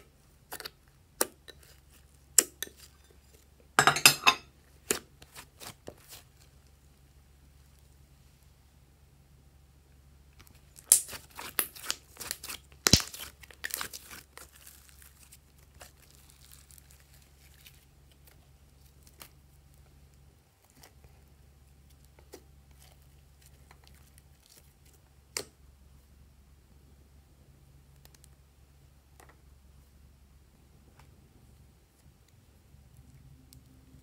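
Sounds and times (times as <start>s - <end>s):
slime crackling pops: 10.8s - 14.6s.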